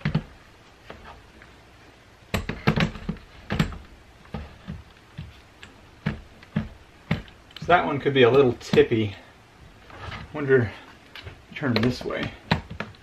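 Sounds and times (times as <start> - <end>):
drills clunking against wood: 2.3 - 7.5.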